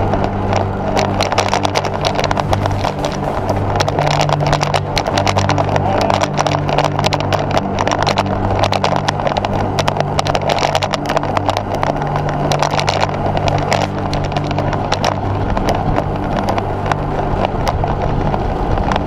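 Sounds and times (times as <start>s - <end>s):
clicks and knocks from rough road: 0.0s - 19.0s
low steady hum: 0.0s - 19.0s
rattling road noise: 0.0s - 19.0s
wind rush: 0.0s - 19.0s.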